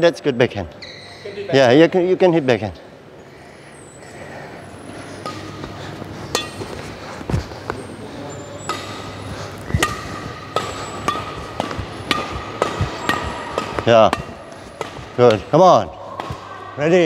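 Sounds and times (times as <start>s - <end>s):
rackets hitting shuttlecock: 5.1s - 16.5s.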